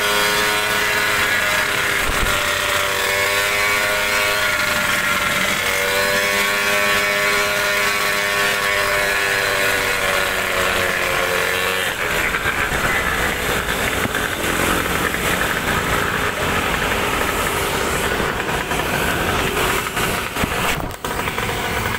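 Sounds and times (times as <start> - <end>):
small scooter engine running: 0.0 - 21.9
wind and wet road noise: 1.6 - 2.6, 12.1 - 21.9.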